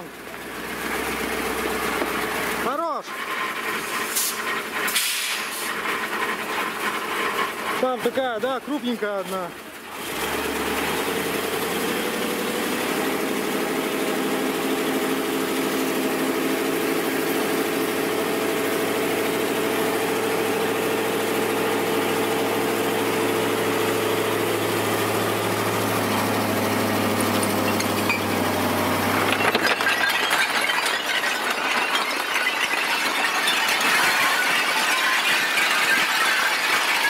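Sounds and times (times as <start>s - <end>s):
stones clattering: 1.9s - 9.5s, 27.1s - 37.0s
truck engine running: 3.4s - 37.0s.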